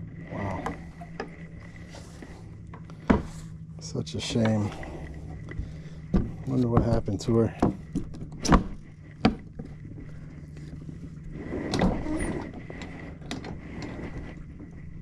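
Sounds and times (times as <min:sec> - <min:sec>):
steady low hum: 0:00.0 - 0:15.0
scraping rub of wooden hatch: 0:07.7 - 0:15.0.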